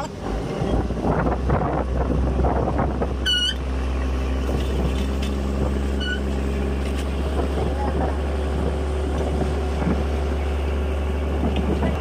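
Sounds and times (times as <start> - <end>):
boat wake rushing and splashing: 0.0 - 12.0
diesel engine droning: 0.0 - 12.0
high squeaks: 5.9 - 6.3.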